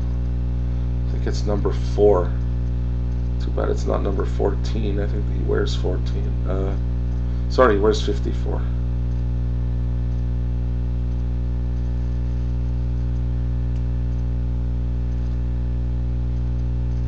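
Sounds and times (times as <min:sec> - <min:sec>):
electrical mains hum: 0:00.0 - 0:17.0
faint tick: 0:00.0 - 0:17.0.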